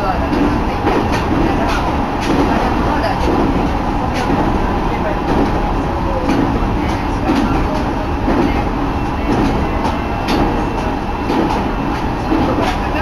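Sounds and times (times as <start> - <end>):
train rumbling on track: 0.0 - 13.0.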